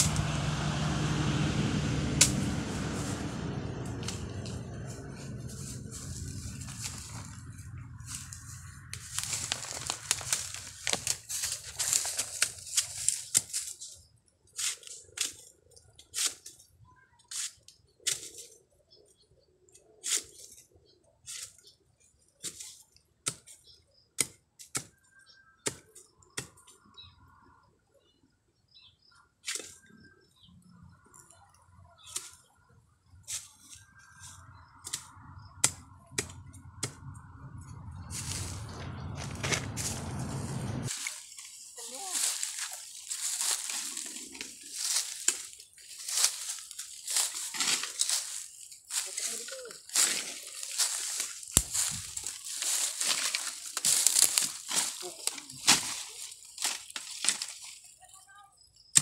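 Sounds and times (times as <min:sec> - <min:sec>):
footsteps crunching through dry leaves: 0:00.0 - 0:14.1, 0:38.0 - 0:58.0
bamboo sheaths cracking and snapping: 0:08.9 - 0:13.8, 0:49.9 - 0:57.8.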